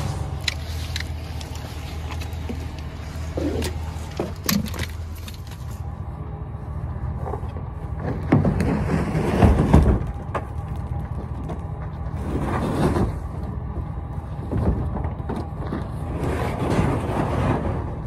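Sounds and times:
truck engine idling: 0.0s - 18.0s
kayak scraping on tailgate: 8.0s - 10.0s, 12.2s - 13.3s.

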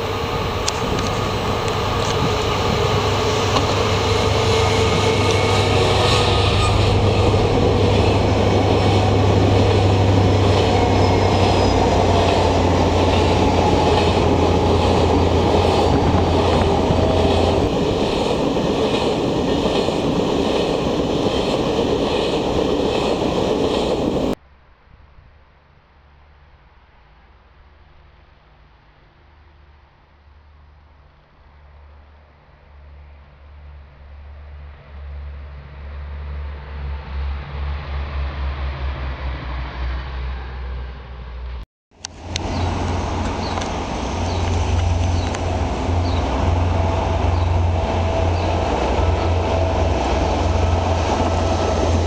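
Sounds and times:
train wagons rumbling: 0.0s - 24.4s, 42.0s - 52.0s
wheels clacking over rail joints: 0.0s - 24.4s, 42.0s - 52.0s.

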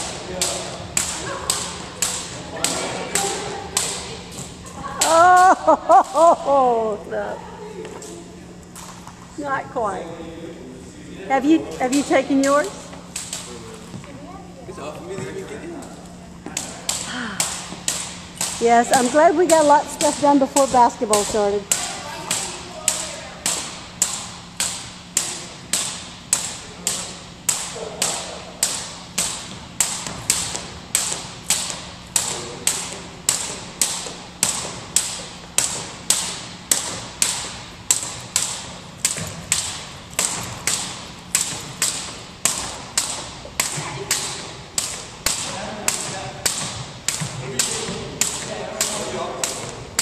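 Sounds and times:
jump ropes slapping wooden floor: 0.0s - 6.2s, 16.5s - 50.0s.

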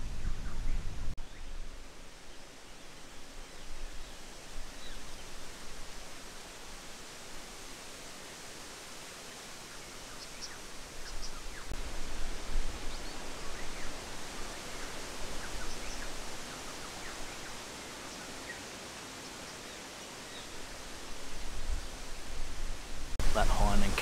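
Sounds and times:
strong wind buffeting microphone: 0.0s - 1.2s.

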